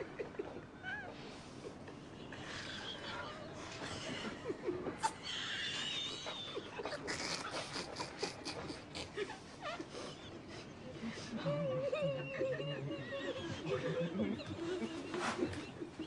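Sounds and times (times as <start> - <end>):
squeaky giggling and snickering: 2.6 - 16.0.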